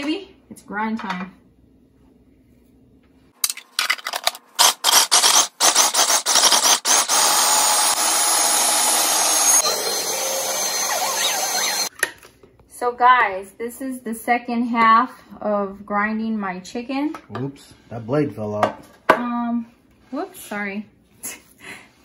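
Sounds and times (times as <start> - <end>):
food processor chopping: 4.6 - 11.9
steady whirring: 5.2 - 11.9.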